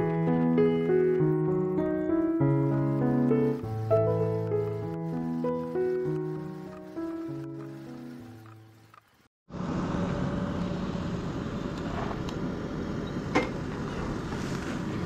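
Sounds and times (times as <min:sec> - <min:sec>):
background music: 0:00.0 - 0:08.8.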